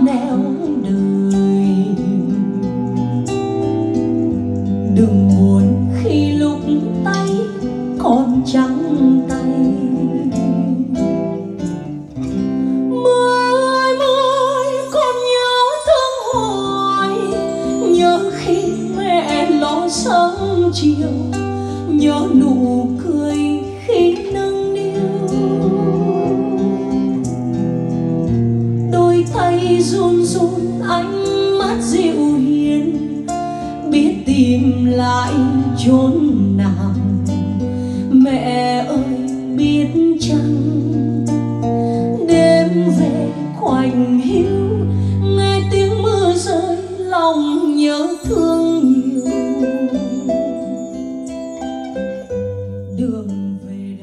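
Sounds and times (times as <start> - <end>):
woman singing with vibrato: 0.0 - 11.9, 12.8 - 28.0, 28.8 - 54.0
plucked guitar: 0.0 - 54.0
long held bass notes: 24.8 - 29.2.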